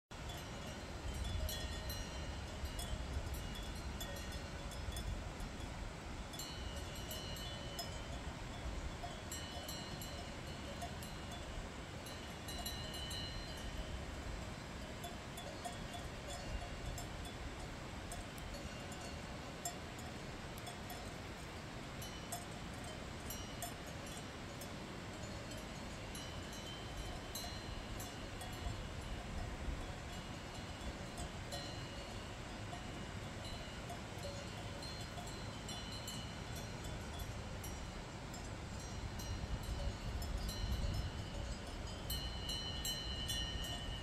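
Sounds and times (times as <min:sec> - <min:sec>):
cowbells clanking: 0:00.2 - 0:14.2, 0:14.8 - 0:44.0.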